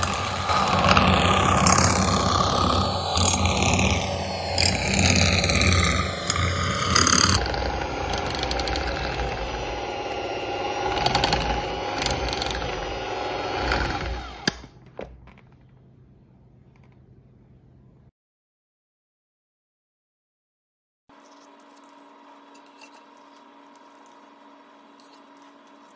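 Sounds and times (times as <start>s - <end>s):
electric hand mixer whirring: 0.0s - 14.8s, 21.2s - 25.9s.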